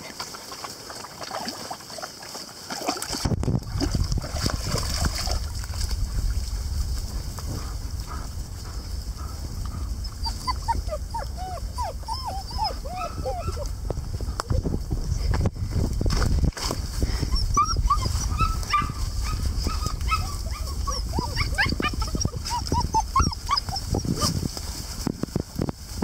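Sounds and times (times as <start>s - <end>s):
low rumble: 3.3s - 26.0s
puppies whimpering and yipping: 7.6s - 15.3s, 17.1s - 24.4s.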